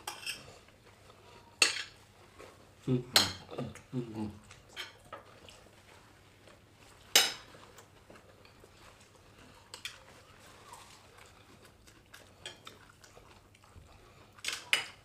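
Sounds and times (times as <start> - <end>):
cutlery clinking on plates: 7.1 - 7.5, 14.4 - 15.0.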